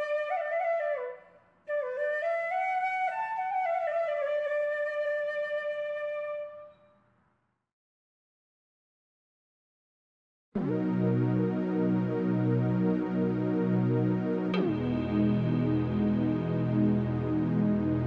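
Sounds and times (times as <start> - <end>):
solo flute melody: 0.0 - 6.8, 10.6 - 18.0.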